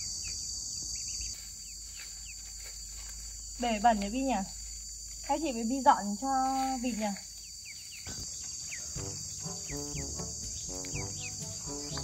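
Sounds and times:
crickets chirring: 0.0s - 12.0s
soft background music: 9.0s - 12.0s.

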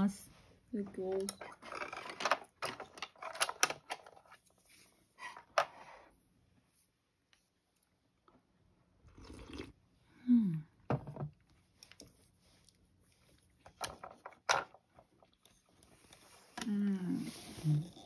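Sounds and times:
person sipping soup: 9.0s - 10.0s
person humming mm: 16.6s - 18.0s.

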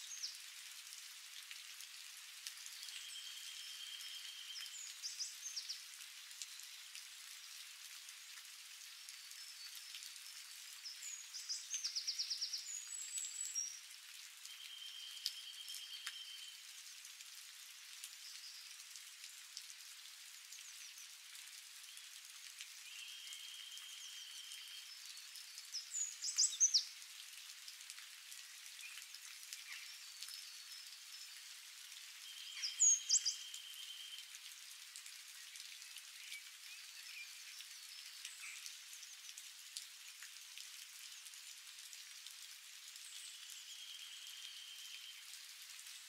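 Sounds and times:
rain falling on leaves: 0.0s - 46.0s
bird chirping: 32.2s - 34.2s.

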